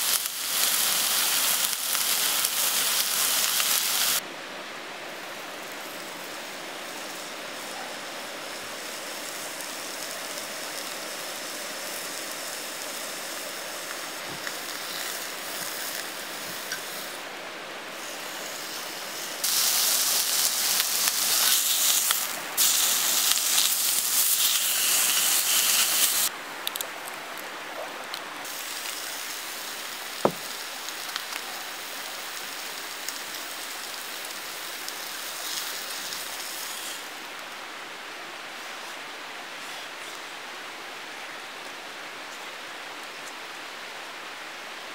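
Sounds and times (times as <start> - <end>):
beef sizzling in a skillet: 0.0 - 4.2, 5.6 - 17.2, 18.0 - 26.3, 28.4 - 37.2
mountain stream running: 0.0 - 44.9.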